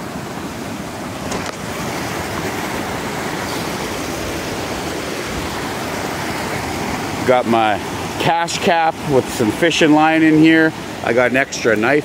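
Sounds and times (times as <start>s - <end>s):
creek rushing over rocks: 0.0s - 12.0s.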